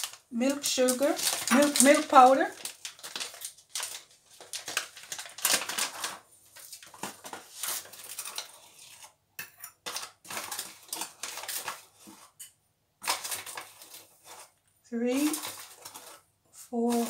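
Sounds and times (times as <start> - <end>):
plastic packet crinkling: 0.0 - 8.6, 9.9 - 12.1, 13.0 - 14.5, 15.1 - 16.2
metal spoon scooping powder: 7.6 - 17.0.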